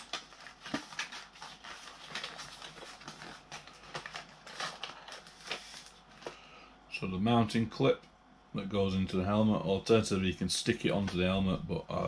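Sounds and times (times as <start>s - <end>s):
packaging rustling: 0.0s - 6.4s.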